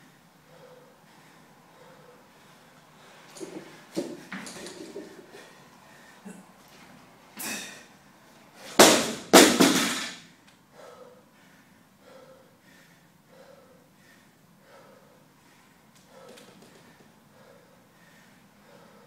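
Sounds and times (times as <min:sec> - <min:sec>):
person breathing hard: 0:00.0 - 0:06.4, 0:10.7 - 0:19.0
barbell crashing on rubber mat: 0:08.7 - 0:10.2.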